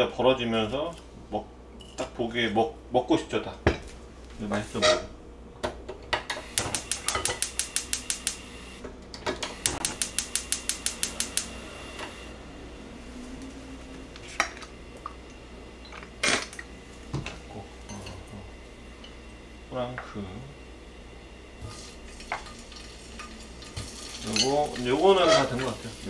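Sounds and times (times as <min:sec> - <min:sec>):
gas igniter clicking: 0:06.4 - 0:08.6, 0:09.5 - 0:12.1.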